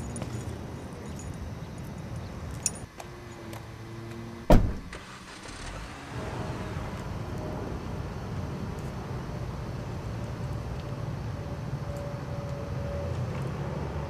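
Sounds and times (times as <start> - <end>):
car door slamming: 4.5 - 5.1.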